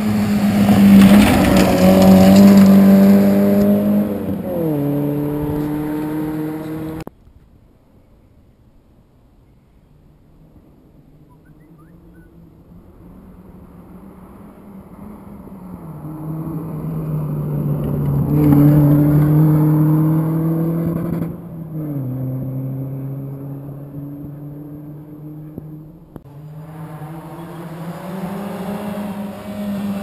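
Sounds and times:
rally car engine passing: 0.0s - 7.1s, 10.5s - 30.0s
rush of tyres on gravel: 0.0s - 7.1s.

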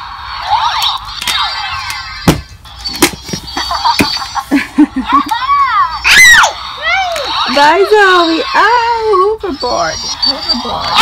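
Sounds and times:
toy being handled knocks: 1.2s - 4.2s.

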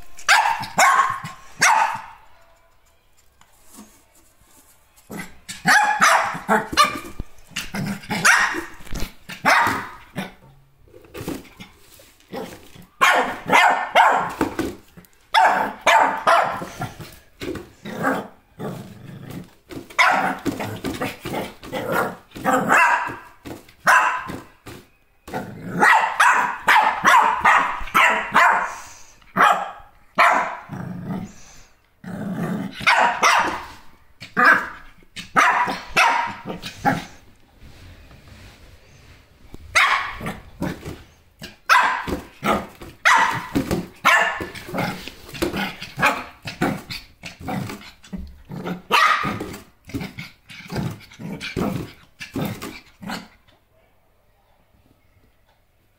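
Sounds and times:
small dog barking: 0.3s - 2.2s, 5.5s - 7.1s, 8.2s - 8.7s, 9.4s - 10.0s, 13.0s - 14.4s, 15.3s - 16.8s, 20.0s - 20.5s, 21.9s - 24.5s, 25.7s - 28.8s, 29.4s - 30.7s, 32.8s - 37.1s, 39.7s - 40.4s, 41.5s - 44.6s, 48.9s - 49.5s.

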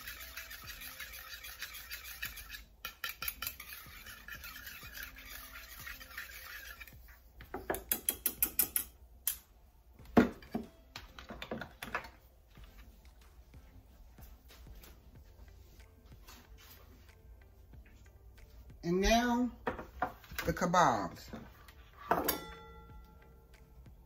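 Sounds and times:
wire whisk scraping metal bowl: 0.0s - 7.2s.

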